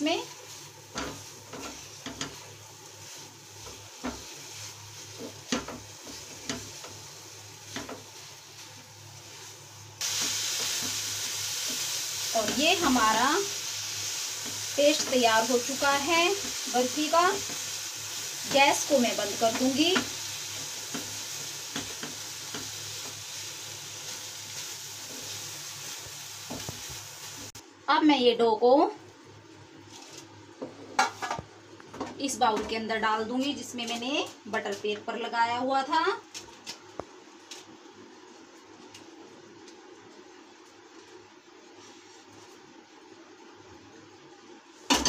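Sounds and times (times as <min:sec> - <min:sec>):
wooden spatula scraping a pan: 0:00.3 - 0:07.0.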